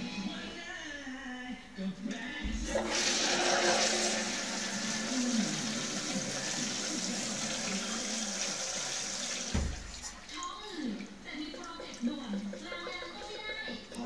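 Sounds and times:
toilet flush pedal press: 0:02.4 - 0:10.4, 0:11.5 - 0:14.0
water rushing into toilet bowl: 0:02.7 - 0:10.6.

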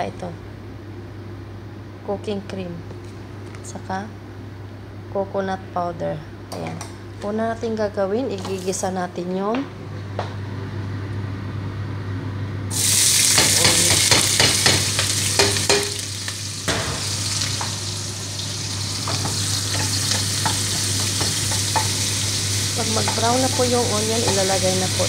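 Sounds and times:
onion sizzling in oil: 0:12.7 - 0:25.0
spoon scraping and knocking pan: 0:13.3 - 0:16.0, 0:19.0 - 0:22.2, 0:22.8 - 0:25.0.

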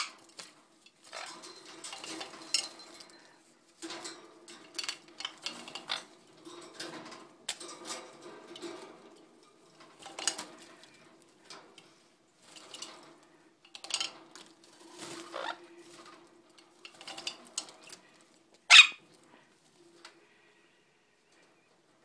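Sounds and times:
bird splashing and wing-fluttering: 0:14.1 - 0:16.3.

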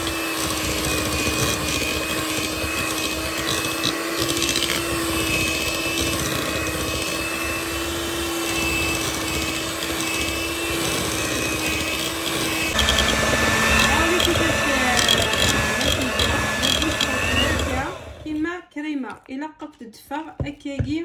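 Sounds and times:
electric hand mixer running: 0:00.0 - 0:18.4.

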